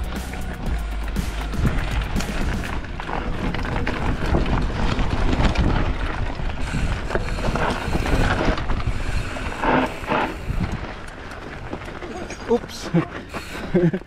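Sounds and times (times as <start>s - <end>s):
bicycle rattling and crackling: 0.0s - 14.0s
wind rushing over microphone: 1.6s - 11.1s.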